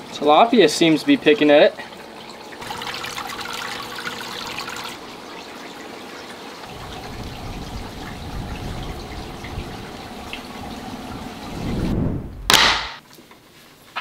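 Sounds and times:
low rumble: 6.8 - 12.5.

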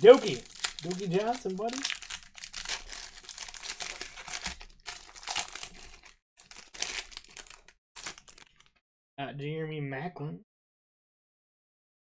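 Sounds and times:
cards rustling: 0.0 - 8.8
foil wrapper crinkling and tearing: 0.0 - 8.8.

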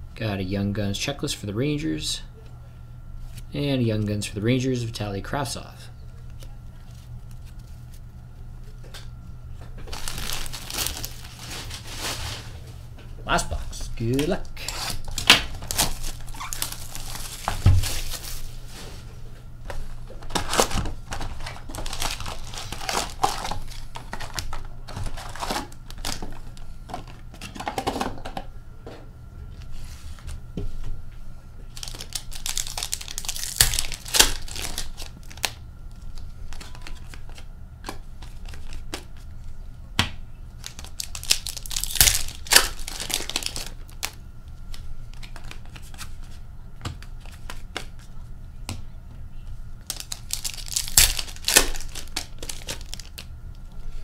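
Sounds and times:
foil wrappers tearing and crinkling: 9.8 - 12.6, 14.0 - 18.8, 20.2 - 27.2, 31.7 - 37.4, 38.2 - 39.3, 40.6 - 46.1, 49.8 - 53.3
cards being handled: 31.7 - 39.5, 40.6 - 48.1.

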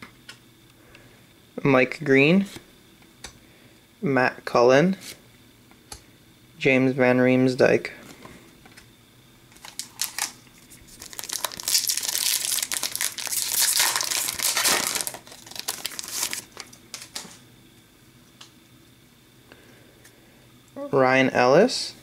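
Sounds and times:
card pack wrapper crinkling: 9.5 - 17.4.

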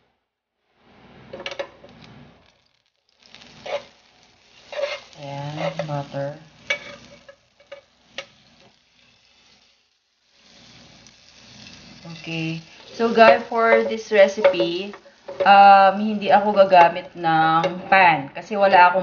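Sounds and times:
butter sizzling in a pan: 1.3 - 18.6
voice: 5.2 - 6.4, 12.0 - 19.0
metal spoon clicking on pan: 13.1 - 15.5.

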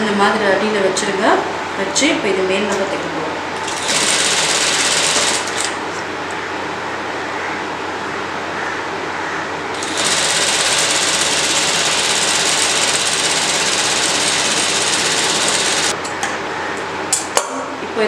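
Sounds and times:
sewing machine running: 3.6 - 5.8, 9.8 - 16.0.

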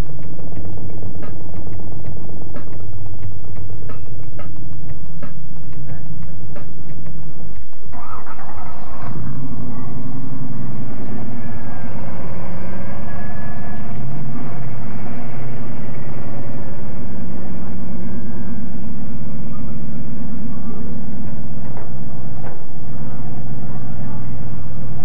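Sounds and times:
truck engine running: 7.8 - 25.0.

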